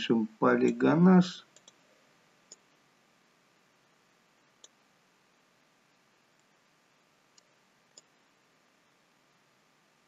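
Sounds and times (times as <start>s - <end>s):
computer mouse click: 1.5s - 1.8s, 2.5s - 2.7s, 4.6s - 4.8s, 7.3s - 8.2s.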